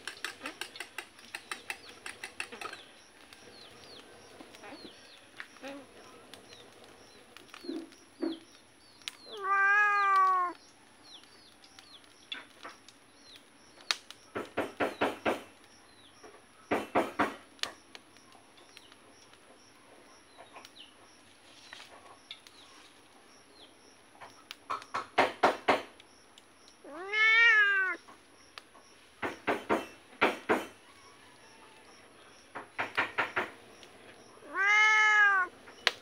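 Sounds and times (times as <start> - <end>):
cat meowing: 9.3 - 10.6, 26.8 - 28.0, 34.4 - 35.5.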